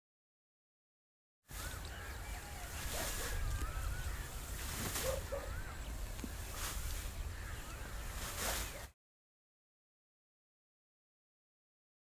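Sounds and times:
birds warbling: 1.5 - 8.9
straw rustling: 1.5 - 8.9.

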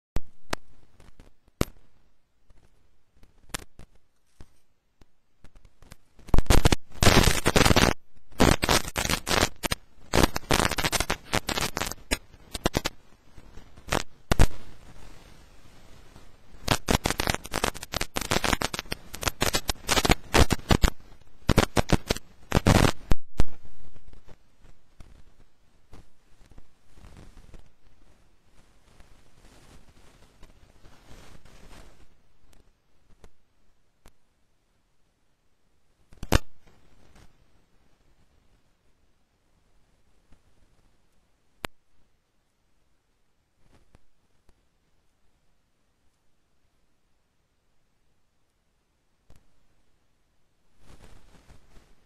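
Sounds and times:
scattered clicks: 2.5 - 14.8, 16.6 - 24.4, 36.1 - 37.3
loud crackling: 5.4 - 15.5, 16.1 - 27.9, 36.2 - 36.8.

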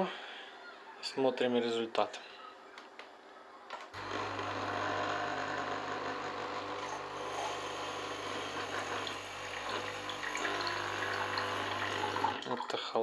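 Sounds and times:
coffee maker pump buzzing: 4.0 - 12.5
water streaming into mug: 7.2 - 12.8.

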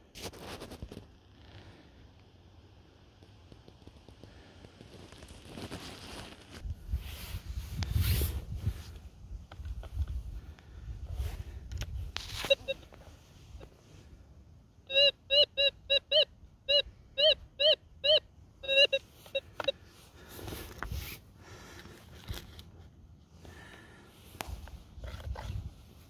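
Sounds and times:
dirt scraping and rustling: 3.6 - 10.4
metal detector beeps: 12.3 - 12.9, 14.9 - 19.8.

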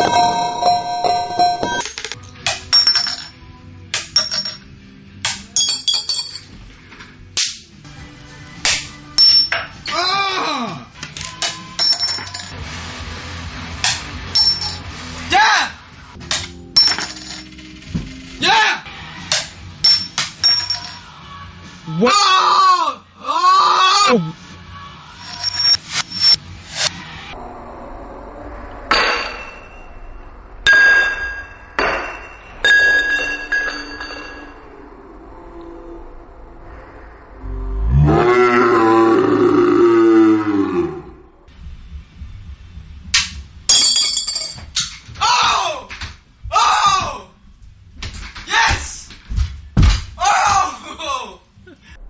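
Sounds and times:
glass ringing: 0.0 - 1.8, 2.7 - 3.4, 5.6 - 6.5, 9.2 - 9.7, 11.8 - 12.5, 14.4 - 14.8, 16.8 - 17.5, 19.8 - 21.0, 30.7 - 34.7, 43.7 - 44.7
rising and falling tone: 0.0 - 1.9, 26.4 - 41.7
coins clinking into glasses: 2.7 - 3.4, 4.0 - 4.6, 5.6 - 6.5, 11.7 - 12.6, 14.4 - 14.8, 16.8 - 17.6, 19.8 - 21.0, 25.2 - 26.4, 43.7 - 44.6.

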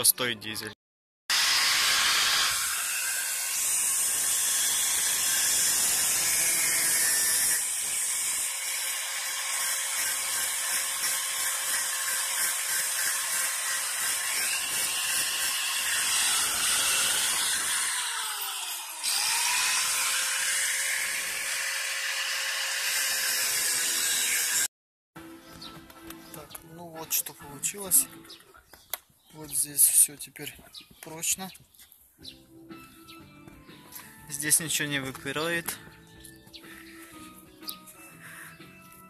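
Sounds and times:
angle grinder cutting steel: 1.3 - 24.7.

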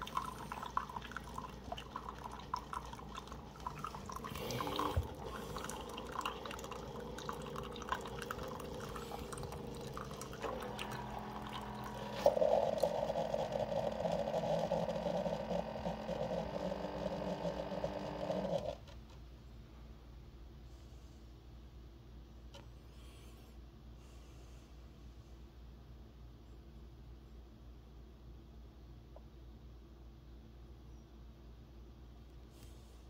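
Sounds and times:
water pouring into mug: 0.0 - 14.1
coffee maker running: 0.0 - 19.0.

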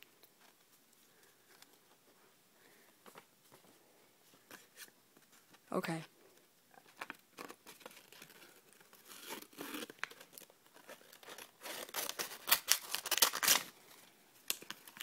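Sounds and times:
paper crinkling and rustling: 6.8 - 13.8.

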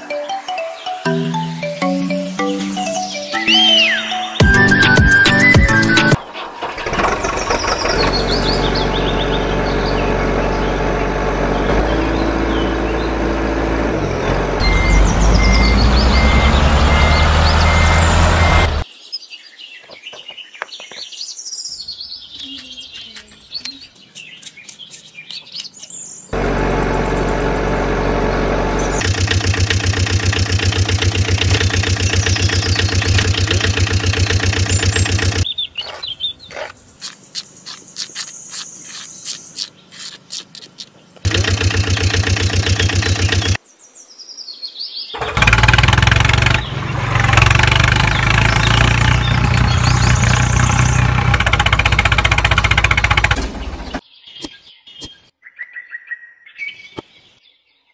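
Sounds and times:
birds chirping: 0.0 - 57.9
truck engine revving: 4.5 - 18.8, 26.3 - 35.5, 39.7 - 43.6, 45.2 - 54.0
gravel and sand clicks: 22.3 - 26.0, 29.0 - 43.6.

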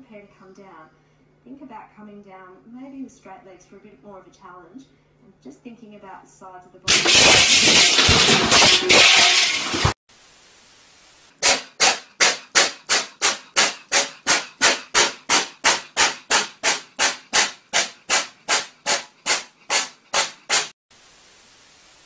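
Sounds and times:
faint static hiss: 10.1 - 11.4, 20.9 - 22.0
steam locomotive chuffing: 11.4 - 20.7.

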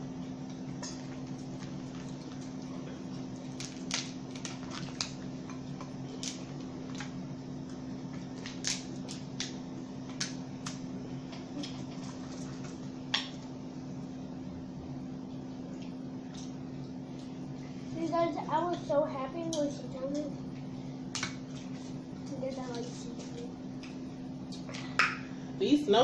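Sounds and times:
steady low hum: 0.0 - 26.0
crab shells cracking: 3.5 - 7.2, 8.3 - 10.8.

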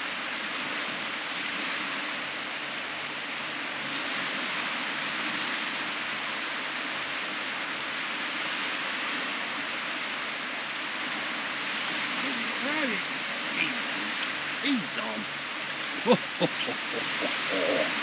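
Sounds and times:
surf breaking on beach: 3.8 - 18.0.

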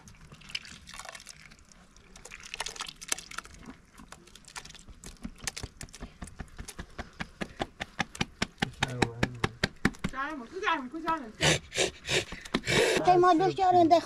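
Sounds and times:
buttermilk dripping into a pot: 0.0 - 6.0.

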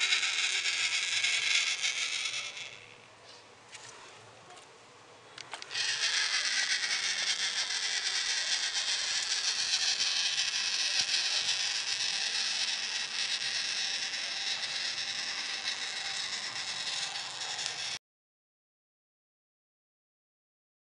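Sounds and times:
toy motor whirring: 0.0 - 3.1, 5.4 - 18.0.

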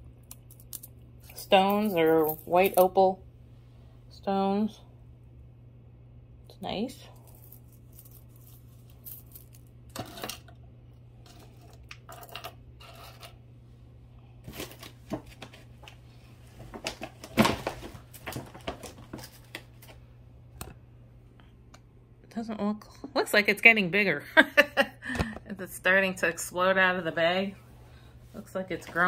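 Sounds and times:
jewelry clinking: 0.3 - 3.0, 7.2 - 10.5
plastic bag crinkling: 16.6 - 20.0.

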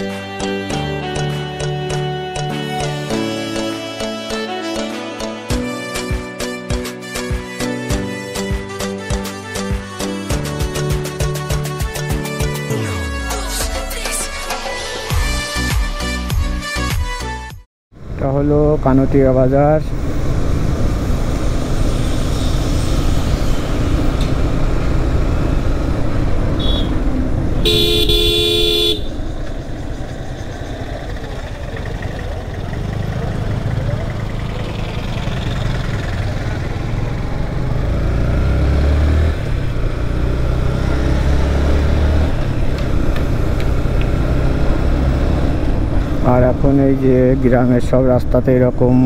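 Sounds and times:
motorcycle engine and road noise: 17.9 - 49.0
vehicle horn honking: 26.5 - 29.3.

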